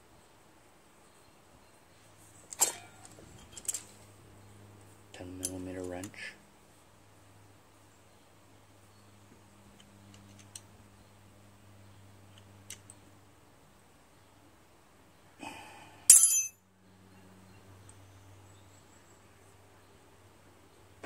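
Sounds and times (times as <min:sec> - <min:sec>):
metal clink with ring: 0:16.1 - 0:16.6.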